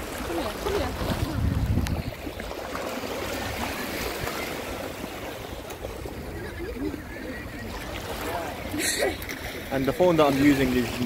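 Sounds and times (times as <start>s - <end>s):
wind buffeting microphone: 0.0s - 7.3s
sea water sloshing at shore: 0.0s - 11.0s.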